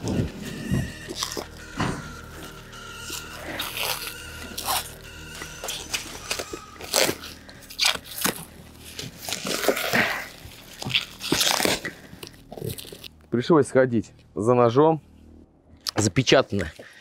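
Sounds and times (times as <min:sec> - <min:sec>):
plastic wrapping rustling: 0:00.0 - 0:13.2
cardboard tube scraping: 0:05.9 - 0:13.1.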